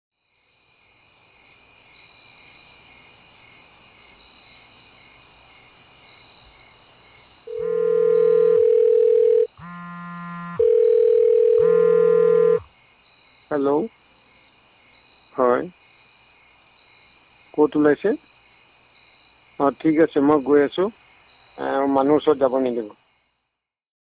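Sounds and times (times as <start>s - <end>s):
high insect chorus: 0.2s - 9.9s, 10.6s - 23.7s
phone electronic ringtone: 7.5s - 12.6s.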